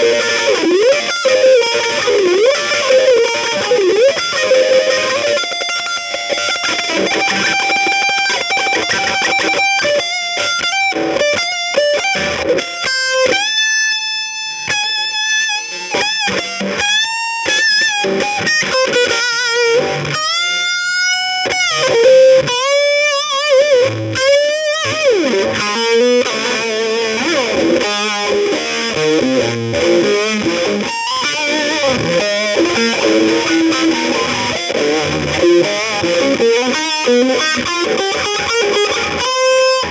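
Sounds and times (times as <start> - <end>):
wavering lead melody: 24.9 - 39.9.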